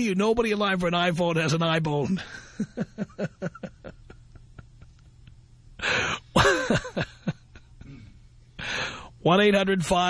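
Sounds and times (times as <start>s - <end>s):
person laughing: 2.2s - 8.1s.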